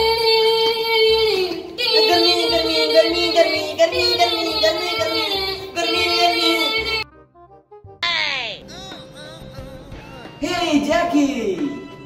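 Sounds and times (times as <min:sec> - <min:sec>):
pop song with sung melody: 0:00.0 - 0:07.0, 0:08.0 - 0:12.0.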